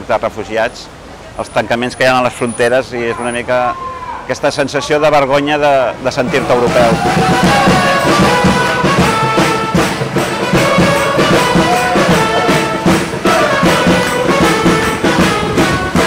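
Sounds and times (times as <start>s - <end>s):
street band playing folk-pop: 5.6s - 16.0s
brass horns: 6.3s - 16.0s.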